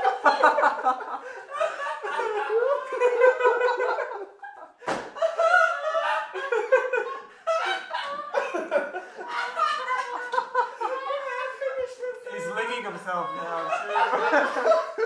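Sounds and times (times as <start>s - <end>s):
people laughing: 0.0s - 15.0s
thump: 4.8s - 5.2s.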